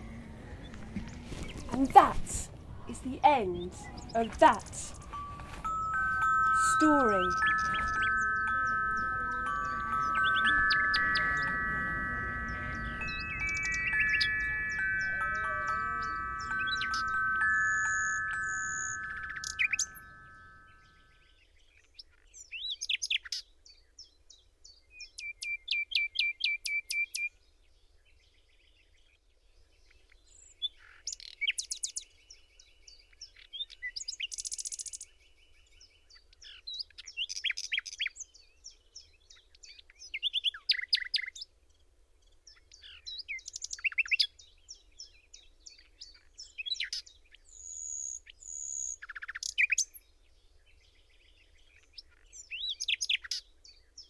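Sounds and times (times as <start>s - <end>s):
birds chirping and trilling: 0.0s - 54.0s
glockenspiel notes: 4.4s - 21.2s.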